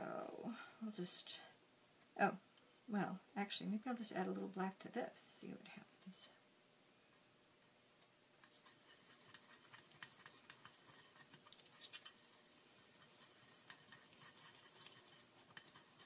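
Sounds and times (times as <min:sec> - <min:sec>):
scratching and clicks mixing paint: 0:08.4 - 0:16.0.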